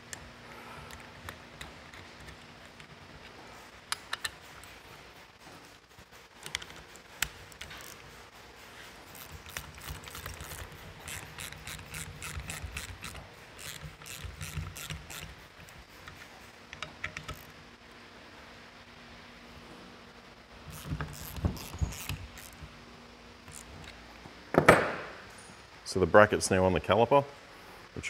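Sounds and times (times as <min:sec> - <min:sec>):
hand ratchet clicking: 0:06.4 - 0:08.1, 0:09.1 - 0:17.6, 0:20.7 - 0:22.6, 0:23.4 - 0:24.0.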